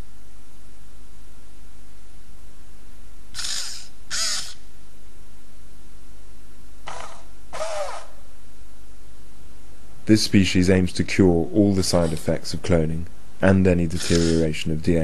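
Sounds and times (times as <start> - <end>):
robot dog animal-like calls: 3.4 - 4.6.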